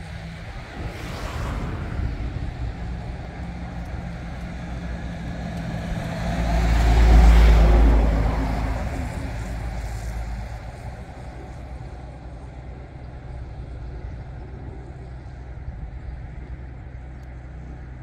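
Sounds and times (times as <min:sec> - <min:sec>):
vehicle passing by: 0:00.0 - 0:12.0.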